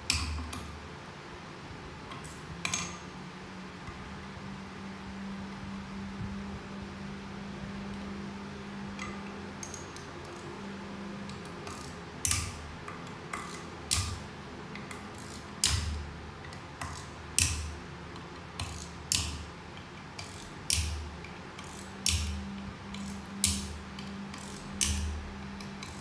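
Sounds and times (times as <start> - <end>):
steady low hum: 0.0 - 26.0
ratchet wrench clicking: 20.2 - 21.0, 21.6 - 26.0.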